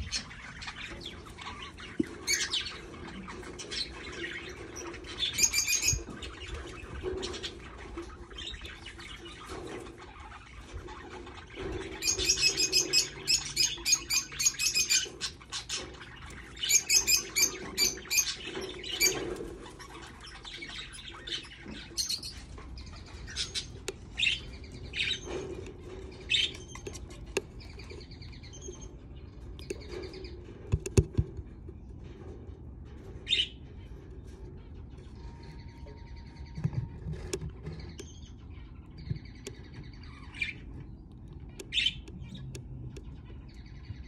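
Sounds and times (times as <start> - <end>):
budgerigar chick chirping: 0.0 - 31.2, 35.2 - 44.0.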